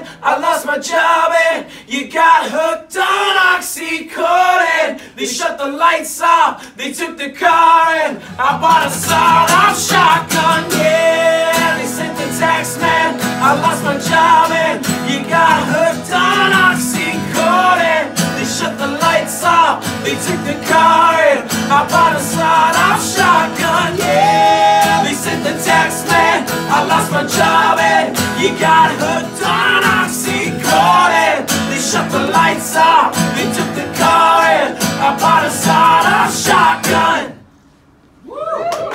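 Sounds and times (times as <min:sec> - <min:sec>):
men singing: 0:00.0 - 0:37.4
acoustic guitars strumming: 0:08.2 - 0:37.4.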